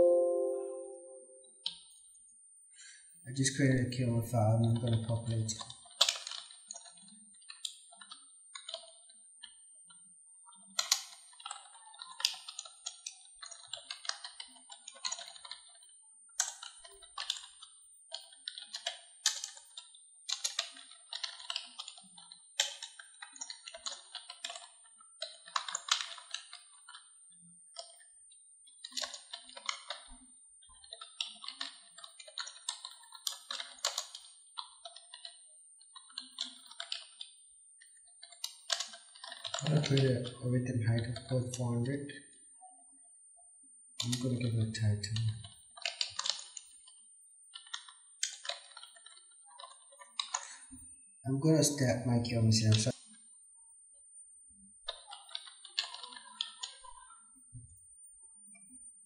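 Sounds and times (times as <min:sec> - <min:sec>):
keyboard typing: 0:16.4 - 0:27.1, 0:30.8 - 0:37.3, 0:38.2 - 0:41.6, 0:44.0 - 0:46.8, 0:47.5 - 0:50.6, 0:54.9 - 0:56.9.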